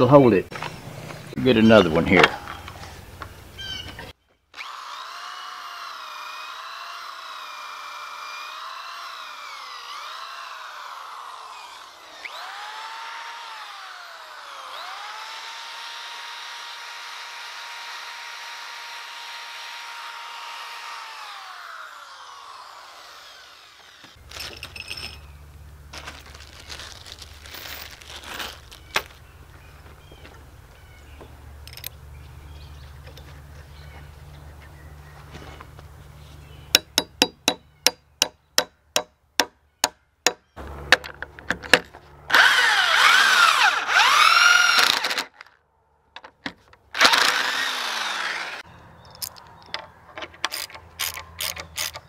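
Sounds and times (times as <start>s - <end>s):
electric drill boring into wood: 4.6s - 24.2s, 42.3s - 45.4s, 47.0s - 48.7s.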